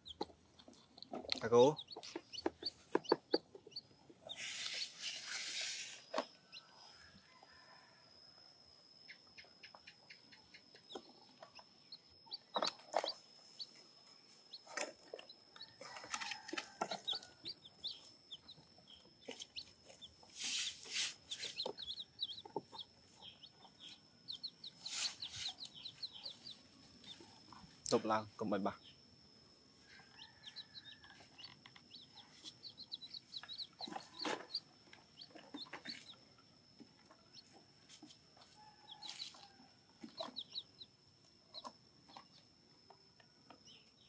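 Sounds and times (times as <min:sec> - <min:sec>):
chickens clucking: 0:00.0 - 0:05.1, 0:09.1 - 0:13.8, 0:14.5 - 0:28.7, 0:30.0 - 0:36.3, 0:36.9 - 0:40.9.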